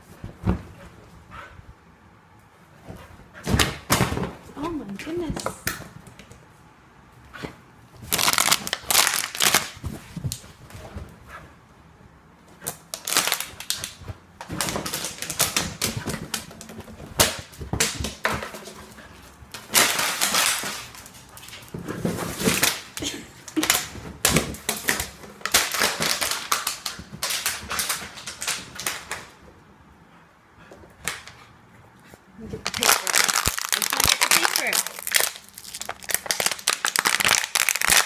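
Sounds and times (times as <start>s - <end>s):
plastic bottle crackling and crunching: 8.1s - 9.8s, 12.9s - 18.6s, 19.6s - 21.2s, 22.2s - 29.2s, 32.6s - 38.0s.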